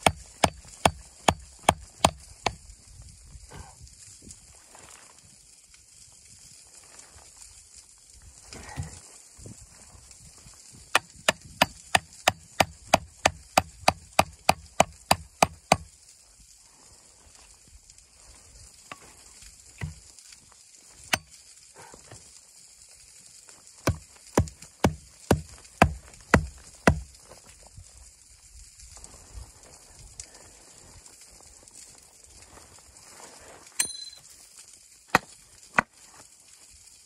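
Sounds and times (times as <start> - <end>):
hatchet chopping wooden board: 0.0 - 2.6, 10.9 - 15.9, 19.8 - 20.0, 21.1 - 21.3, 23.8 - 27.1, 35.1 - 35.9.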